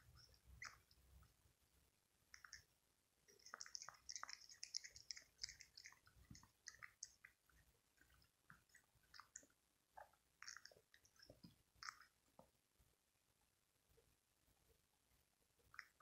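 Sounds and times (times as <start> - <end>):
cat lapping milk: 2.3 - 2.7, 3.3 - 12.2.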